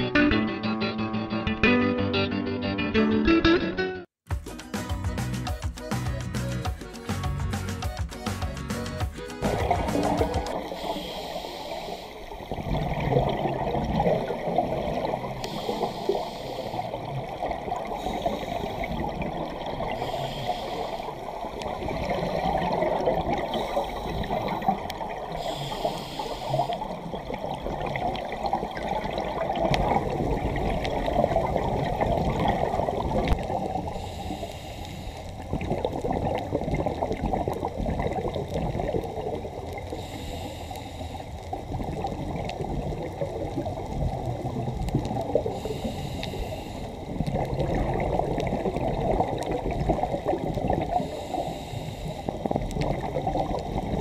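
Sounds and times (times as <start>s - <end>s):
muffled underwater rush: 8.2s - 54.0s
regulator bubbles gurgling: 9.3s - 54.0s.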